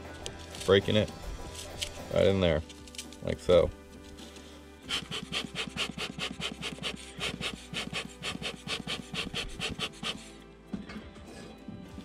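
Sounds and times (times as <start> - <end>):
dry dung rubbed by hand rasping: 4.5 - 10.4.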